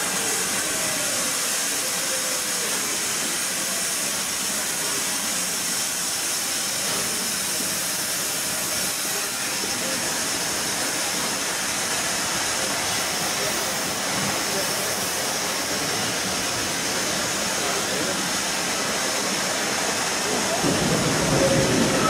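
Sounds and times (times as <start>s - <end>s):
hiss of escaping steam: 0.0s - 22.0s
steam locomotive coasting past: 0.0s - 22.0s.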